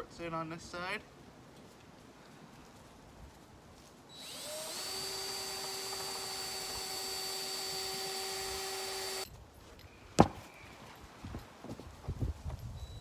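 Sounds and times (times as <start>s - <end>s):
cordless drill driving screw: 4.2s - 9.3s.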